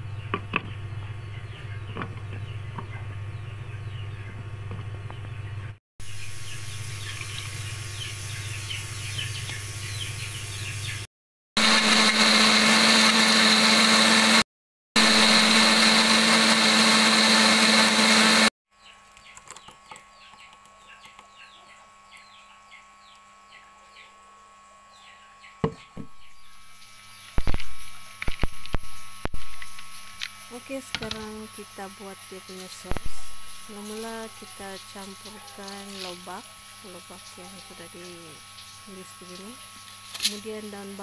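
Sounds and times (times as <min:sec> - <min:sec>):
electric blender running: 0:11.6 - 0:18.5, 0:25.6 - 0:41.0.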